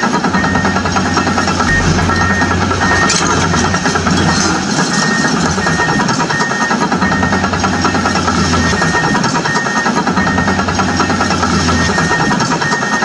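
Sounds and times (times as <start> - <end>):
excavator engine running: 1.2 - 6.4
music playing: 1.6 - 5.9.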